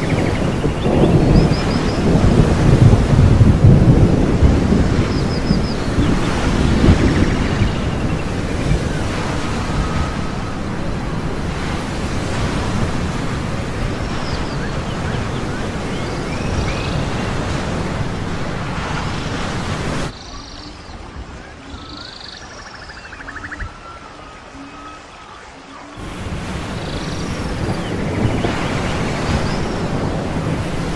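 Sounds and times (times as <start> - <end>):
ocean surf rushing: 0.0 - 20.2, 25.6 - 30.9
wind: 0.0 - 30.9.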